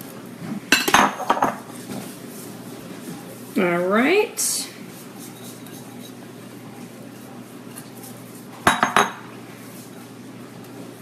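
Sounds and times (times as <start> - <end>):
low kitchen background: 0.0 - 11.0.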